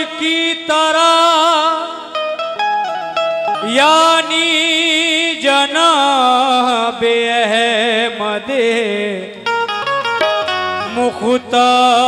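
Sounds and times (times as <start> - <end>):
harmonium: 0.0 - 12.0
person singing: 3.4 - 9.6, 10.2 - 12.0.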